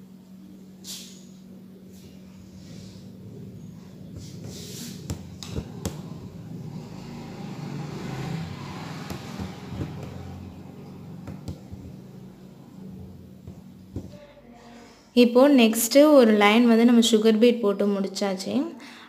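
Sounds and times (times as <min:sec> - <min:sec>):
steady low hum: 0:00.0 - 0:16.8.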